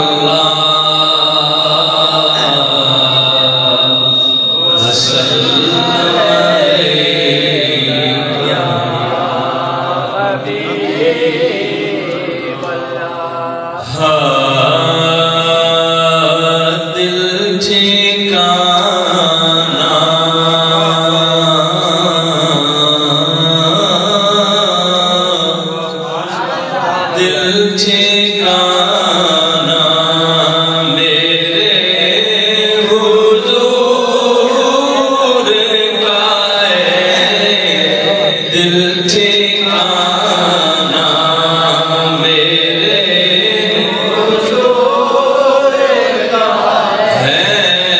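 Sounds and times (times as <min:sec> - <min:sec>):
high-pitched whine: 0:00.0 - 0:11.7
low held drone: 0:00.0 - 0:17.5
men chanting: 0:00.0 - 0:47.9.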